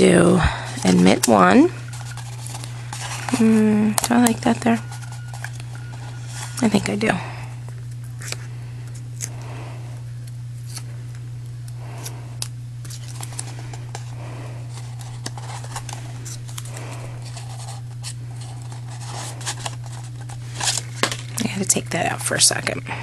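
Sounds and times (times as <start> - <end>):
steady low hum: 0.0 - 23.0
paper rustling: 0.6 - 7.0, 12.8 - 21.6.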